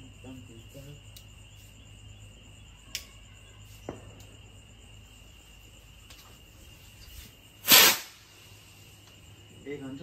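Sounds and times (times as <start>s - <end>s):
crickets chirping: 0.0s - 10.0s
firework rocket launching: 7.6s - 8.4s.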